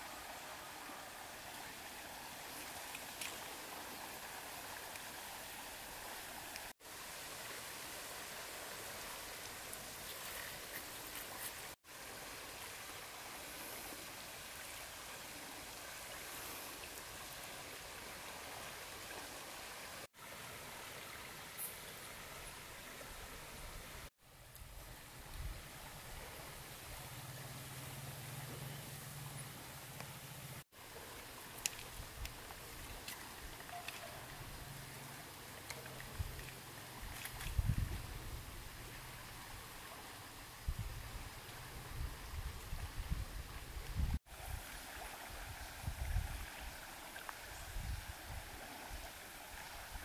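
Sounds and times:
faint light ticks: 31.2s - 34.1s
river water rushing: 44.3s - 50.0s.

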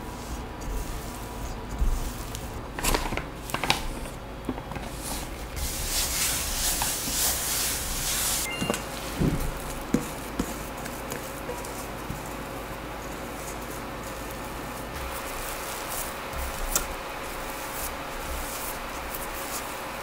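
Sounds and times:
hand sweeping flour swishing: 0.0s - 2.6s, 4.9s - 20.0s
spatula scraping dough in bowl: 0.0s - 2.6s, 4.8s - 8.5s, 14.8s - 20.0s.

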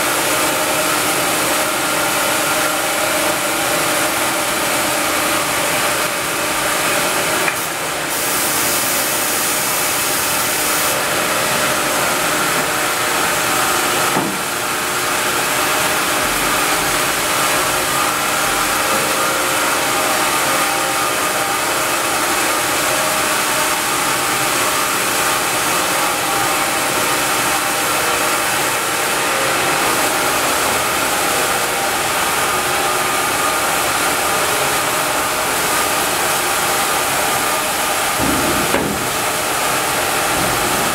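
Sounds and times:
band saw machinery whine and hum: 0.0s - 40.9s
single knock: 14.1s - 14.4s.

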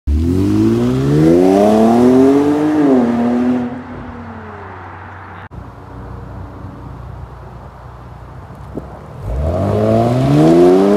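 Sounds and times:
car engine accelerating hard: 0.1s - 4.1s, 9.1s - 10.9s
car engine idling: 3.9s - 9.2s.

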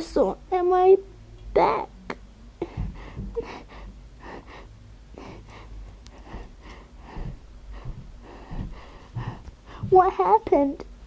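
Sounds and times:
person gasping breaths: 2.6s - 10.0s.

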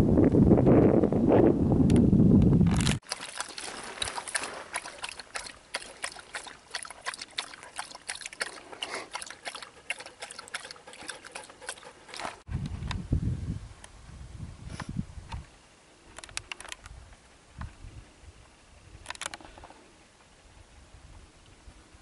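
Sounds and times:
dogs lapping water: 3.0s - 12.5s.

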